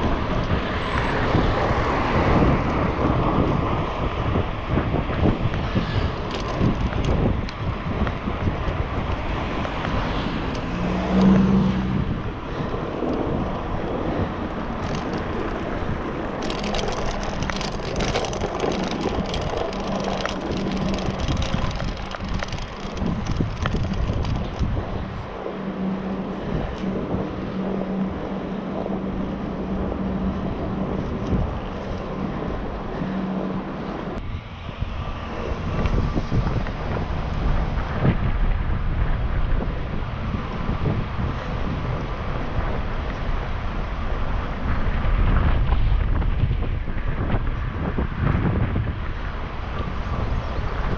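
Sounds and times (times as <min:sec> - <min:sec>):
bicycle tyre road noise: 0:00.0 - 0:50.9
wind buffeting microphone: 0:00.0 - 0:50.9
rattling clicks over cobblestones: 0:05.4 - 0:11.5, 0:12.8 - 0:34.2, 0:40.5 - 0:50.9
low hum: 0:10.2 - 0:50.9.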